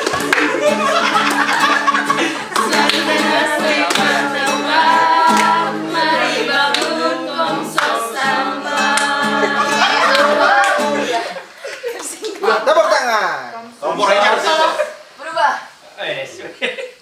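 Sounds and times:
strummed acoustic guitar: 0:00.0 - 0:11.4
group of voices singing: 0:00.0 - 0:11.8.

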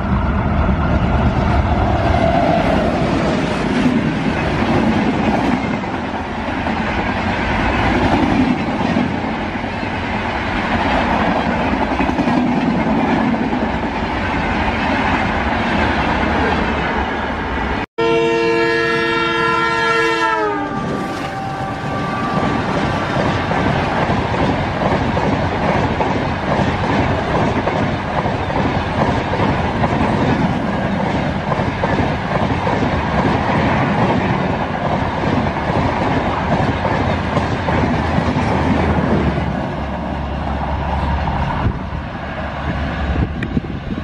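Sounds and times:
train wheels roaring on rails: 0:00.0 - 0:44.0.

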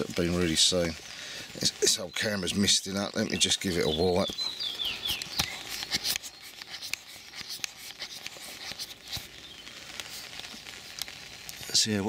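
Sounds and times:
sharp clicks: 0:04.2 - 0:09.3
rubbing and scuffing handling noise: 0:05.0 - 0:09.4.

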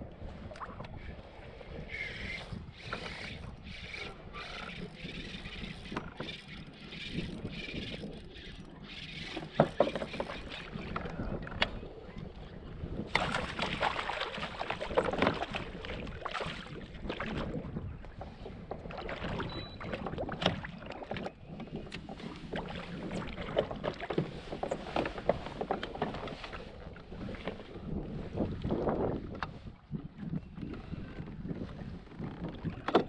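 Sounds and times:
water splashing: 0:13.1 - 0:17.5.

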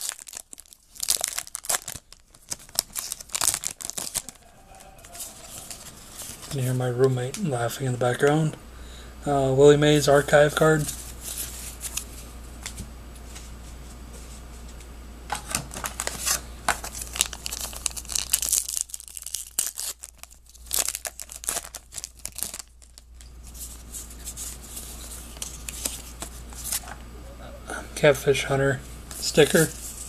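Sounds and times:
wrapper crinkling and tearing: 0:00.0 - 0:06.6, 0:15.6 - 0:26.8
card handling: 0:15.3 - 0:27.0.

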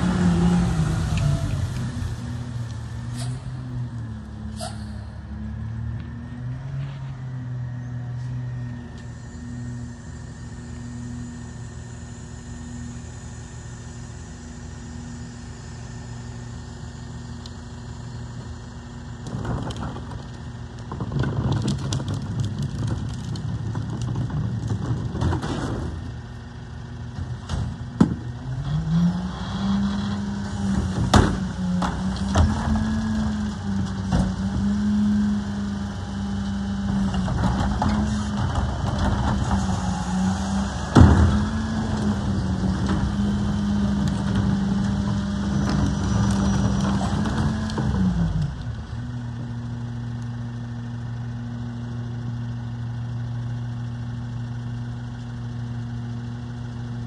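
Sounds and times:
garbage truck diesel engine: 0:00.0 - 0:57.0
metal clanks of cart: 0:20.9 - 0:26.1.

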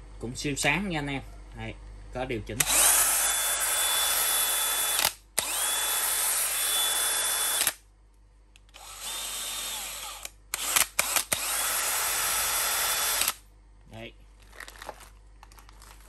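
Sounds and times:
drill motor whining: 0:02.6 - 0:07.8, 0:08.7 - 0:13.4.

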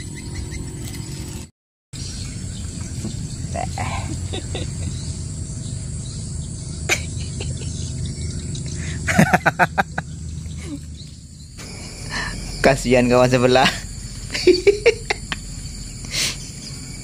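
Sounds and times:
crickets and insects chirring: 0:00.0 - 0:01.4, 0:02.0 - 0:17.0.

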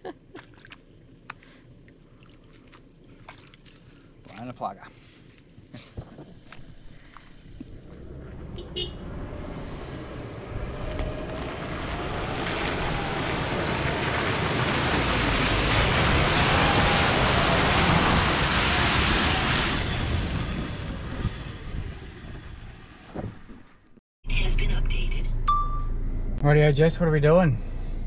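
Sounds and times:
splashing mud and water: 0:00.2 - 0:05.6, 0:06.4 - 0:08.0, 0:11.7 - 0:20.2
engine revving: 0:07.7 - 0:23.1.

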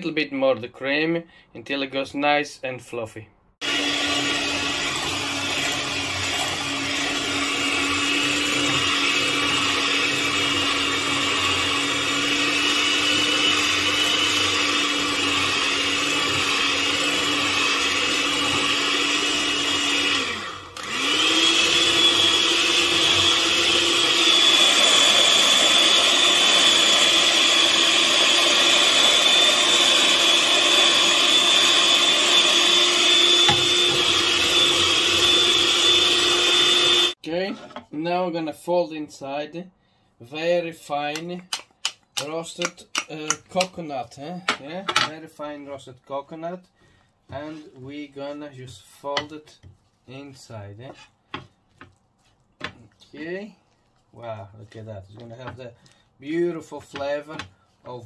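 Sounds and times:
electric mixer whipping cream: 0:03.6 - 0:37.2.

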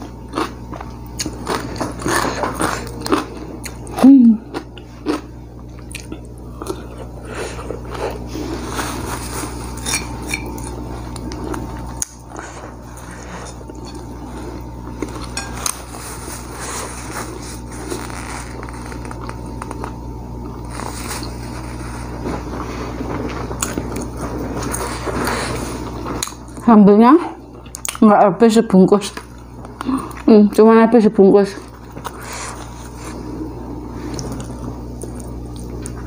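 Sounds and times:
close chewing: 0:00.0 - 0:26.6, 0:33.9 - 0:36.0
steady low hum: 0:00.0 - 0:36.0.

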